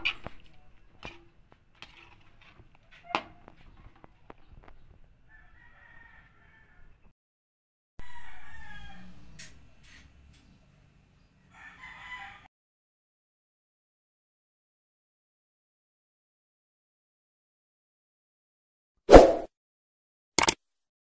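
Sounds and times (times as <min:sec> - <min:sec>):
rooster crowing: 0:05.3 - 0:07.1, 0:08.0 - 0:09.5, 0:11.5 - 0:12.5
sharp clicks: 0:20.4 - 0:20.6.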